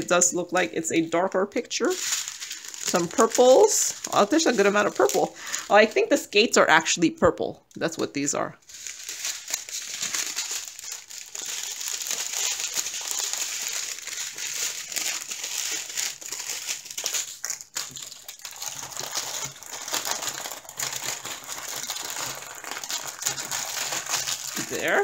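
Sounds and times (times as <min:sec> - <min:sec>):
plastic packaging crinkling: 0:00.0 - 0:06.6, 0:08.6 - 0:25.0.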